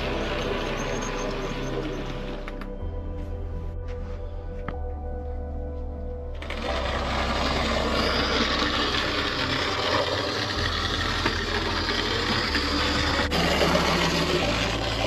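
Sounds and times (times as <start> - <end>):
model locomotive running: 0.0 - 2.5, 6.4 - 15.0.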